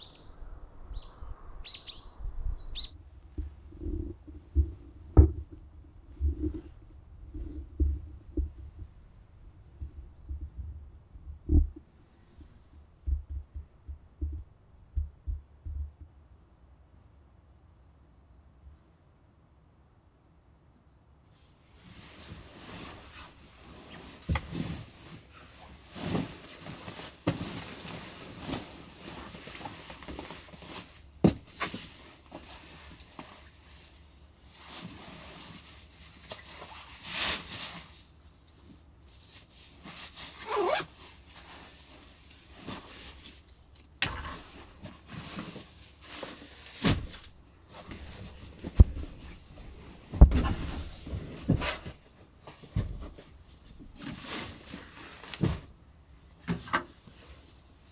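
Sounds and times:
sleeping bag rustling: 21.8s - 38.1s, 39.1s - 43.5s, 54.0s - 55.8s.

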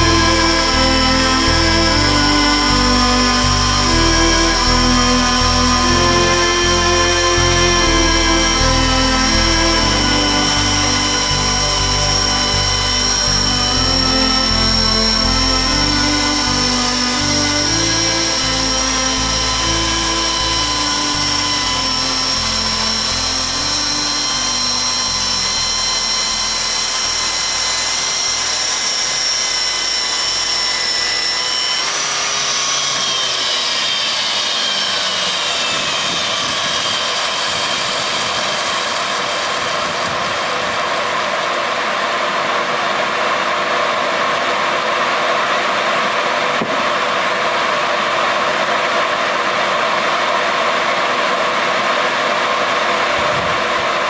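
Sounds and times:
chainsaw mill motor whine: 0.0s - 54.0s
sawing noise: 0.0s - 54.0s.

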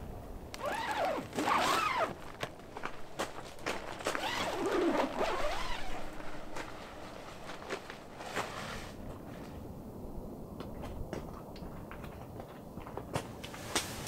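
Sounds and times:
zipper being pulled open: 0.6s - 2.4s, 4.0s - 6.7s
fabric handled: 0.6s - 9.0s.

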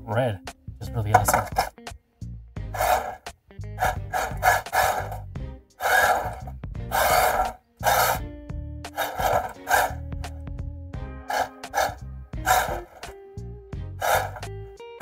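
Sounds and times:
tyres scrubbing on smooth surface: 1.2s - 1.7s, 2.8s - 3.2s, 3.8s - 5.2s, 5.8s - 8.2s, 8.9s - 10.0s, 11.3s - 13.1s, 14.0s - 14.5s
toy car motor whirring: 2.8s - 3.2s, 3.8s - 5.2s, 5.8s - 8.2s, 8.9s - 10.0s, 11.3s - 13.1s, 14.0s - 14.5s.

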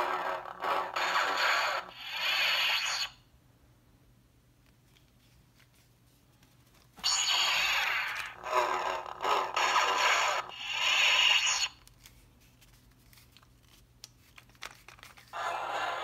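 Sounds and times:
toy lightsaber sound effects: 0.0s - 3.2s, 7.0s - 11.8s, 15.4s - 16.0s.

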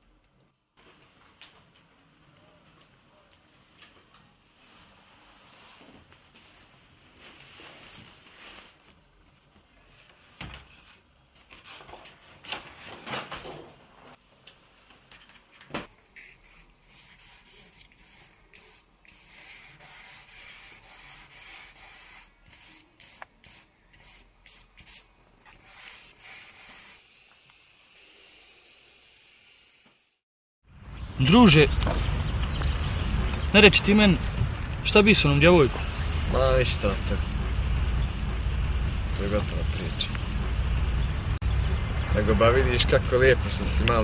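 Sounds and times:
pencil scratching on paper: 16.2s - 25.0s.

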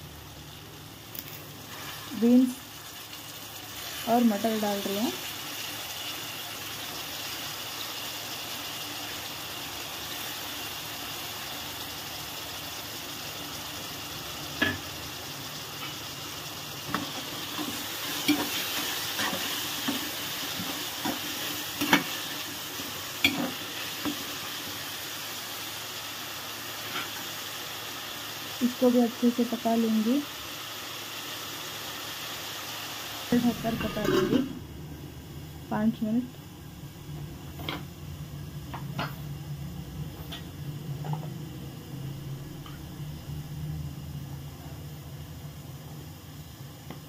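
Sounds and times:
vegetables sizzling in oil: 0.0s - 47.0s
spatula scraping a pan: 16.9s - 22.5s.

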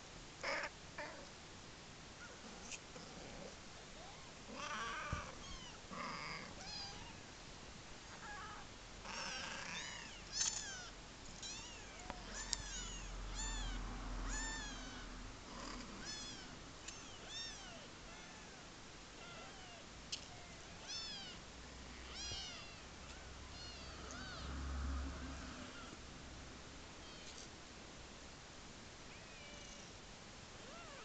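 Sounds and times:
kittens mewing: 2.2s - 7.2s, 8.1s - 18.6s, 22.0s - 24.6s.

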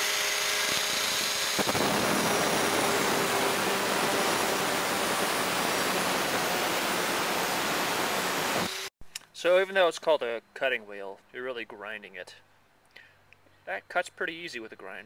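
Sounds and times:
angle grinder cutting metal: 0.0s - 8.9s.

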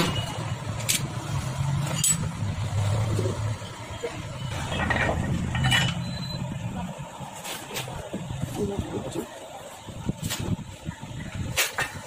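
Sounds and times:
spanner clinking on bolts: 1.9s - 2.4s.

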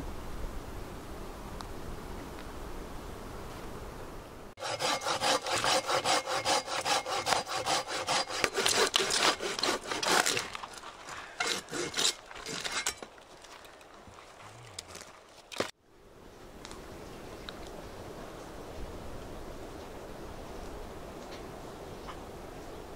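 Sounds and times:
hand saw cutting log: 4.6s - 13.1s.

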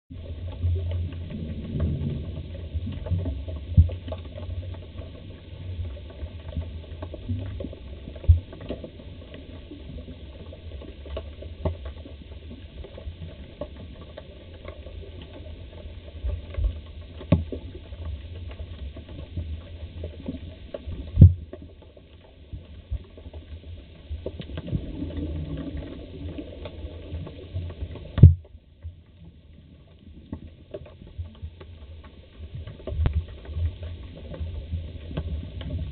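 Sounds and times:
faint clicks: 0.1s - 35.9s
muffled underwater rumble: 0.1s - 35.9s.

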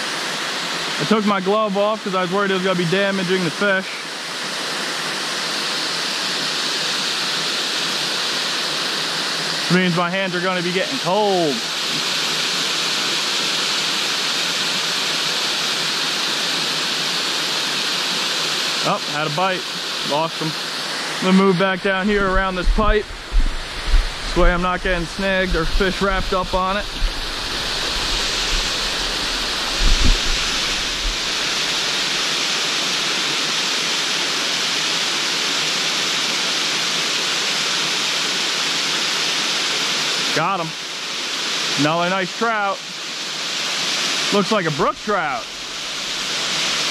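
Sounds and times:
stream rushing over rocks: 0.0s - 46.9s
low thumps: 21.9s - 31.6s.

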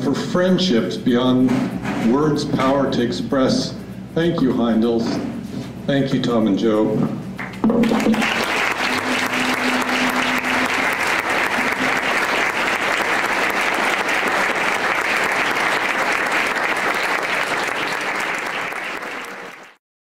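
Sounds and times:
audience applauding: 7.4s - 19.8s.

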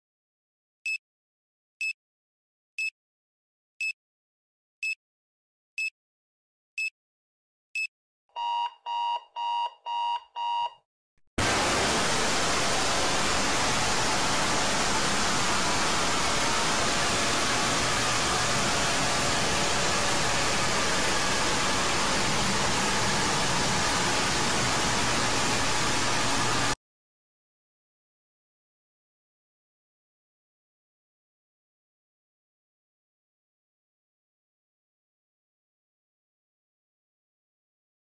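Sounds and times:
timer alarm beeps: 7.8s - 10.8s
loud harsh static noise: 11.4s - 26.8s.

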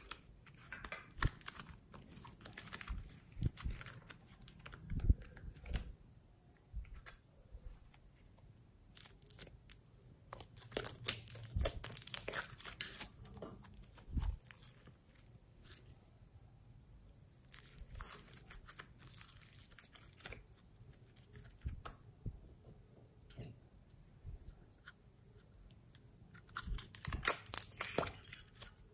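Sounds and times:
slime crackling and popping: 8.9s - 9.7s, 10.3s - 15.0s, 26.6s - 28.6s.

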